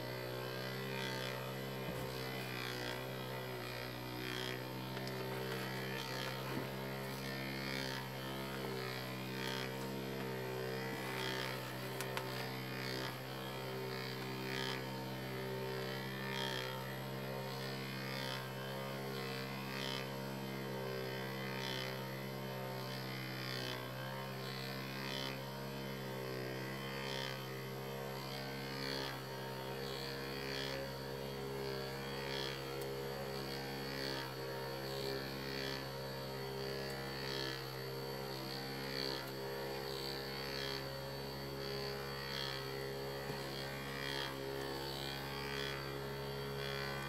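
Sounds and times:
electric motor humming: 0.0 - 47.0
faint ticks: 12.0 - 12.3.

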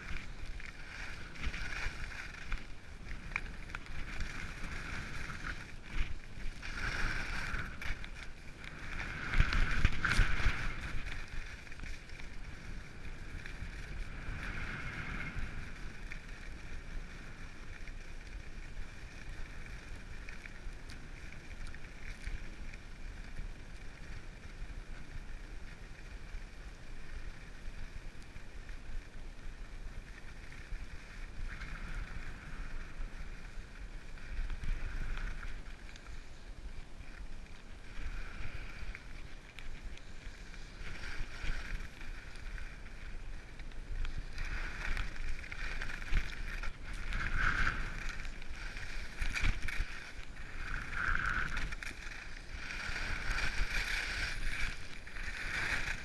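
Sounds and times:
skis scraping over snow: 0.0 - 56.0
wind rumbling on microphone: 0.0 - 56.0.

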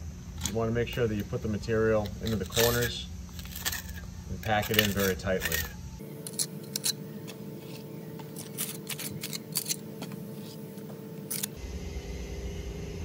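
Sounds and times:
steady low hum: 0.0 - 13.0
trowel scraping mortar: 1.9 - 11.6.

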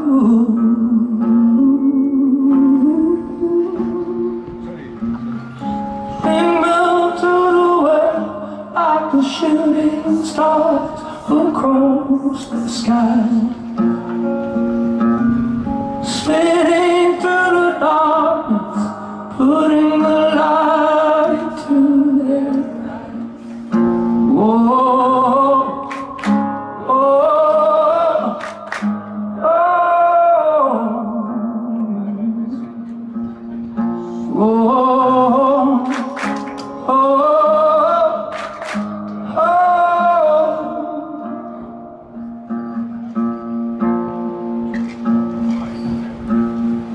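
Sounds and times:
acoustic guitar: 0.0 - 46.9
man singing: 6.2 - 14.0, 16.0 - 32.9, 34.2 - 42.0.

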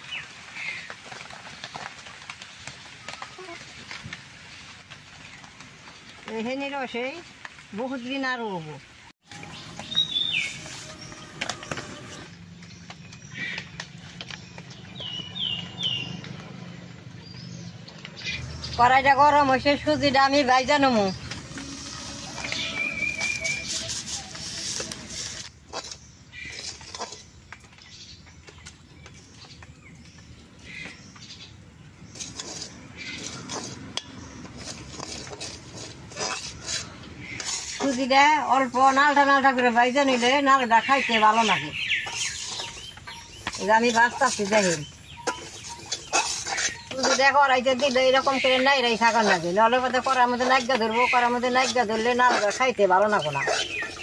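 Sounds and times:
birds chirping: 0.0 - 54.0
wood fire crackling: 0.0 - 54.0
metal spatula scraping a pan: 9.3 - 12.3, 19.7 - 27.3, 32.0 - 54.0.

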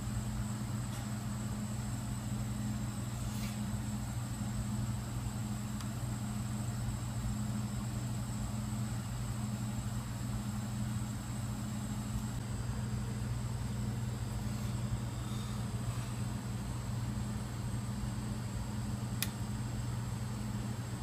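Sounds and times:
low electrical hum: 0.0 - 21.0
faint click: 19.2 - 19.4.

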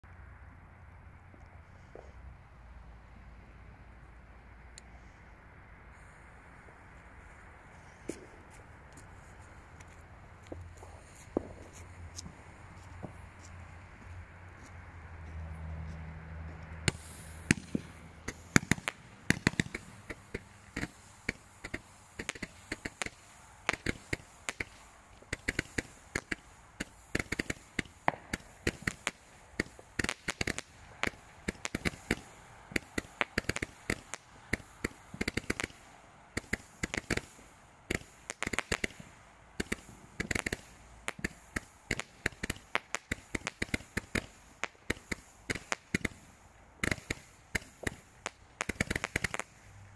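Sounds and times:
firework pops and cracks: 7.8 - 13.6, 16.8 - 49.8.

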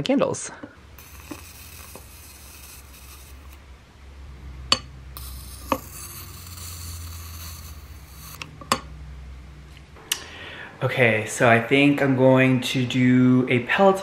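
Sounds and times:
arc lighter buzzing hiss: 0.8 - 3.8, 5.1 - 8.7.

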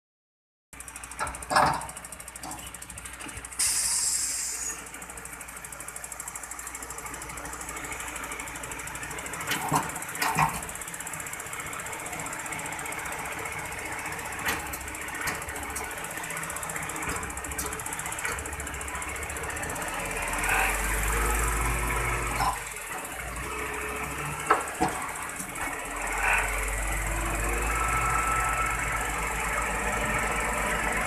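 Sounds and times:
truck engine running: 0.8 - 31.0
hydraulic arm moving container: 1.2 - 5.0, 11.7 - 31.0
short hiss: 3.6 - 4.8.

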